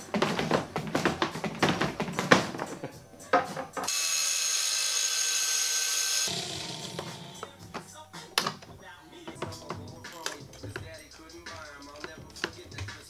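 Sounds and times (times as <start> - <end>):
angle grinder cutting steel rod: 3.9 - 7.4.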